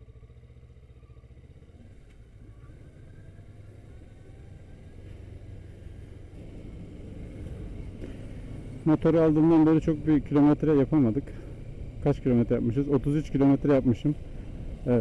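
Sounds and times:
low road rumble: 0.0 - 15.0
motorcycle engine: 0.0 - 15.0.

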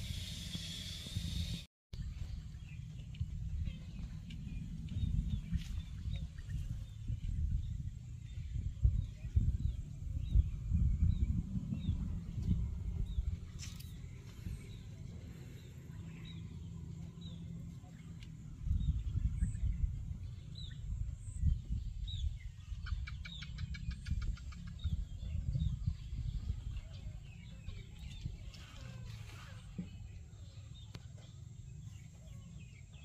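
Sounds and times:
low rumble: 0.0 - 23.0
small birds chirping: 0.3 - 33.0.

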